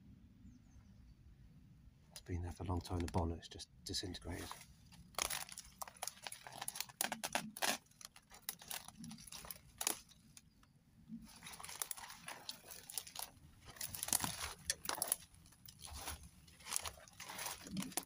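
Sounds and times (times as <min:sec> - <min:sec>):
footsteps on dry leaves: 0:04.3 - 0:10.3, 0:11.2 - 0:18.0
twig cracking: 0:04.4 - 0:18.0.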